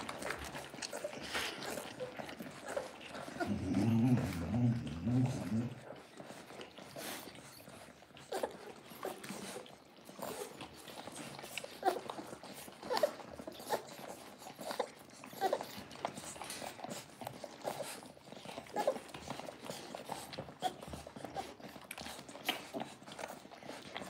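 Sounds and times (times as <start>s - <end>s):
dog eating from steel bowl: 0.0s - 24.0s
puppies squeaking and grunting: 0.0s - 24.0s
suckling clicks and smacks: 18.9s - 24.0s.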